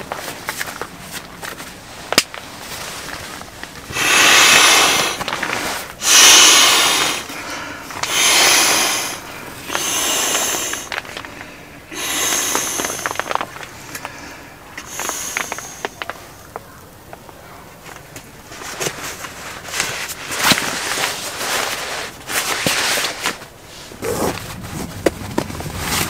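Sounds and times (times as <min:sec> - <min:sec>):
nylon rustling: 0:00.0 - 0:15.5, 0:17.9 - 0:26.0
air rushing into valve: 0:03.9 - 0:11.2, 0:11.8 - 0:16.0.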